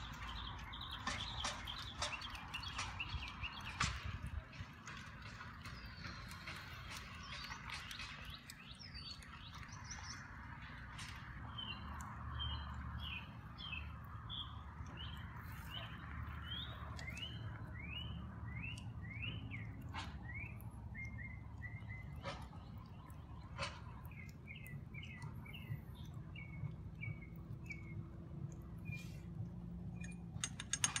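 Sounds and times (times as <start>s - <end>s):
birds chirping: 0.0s - 31.0s
sharp clicks: 29.9s - 31.0s.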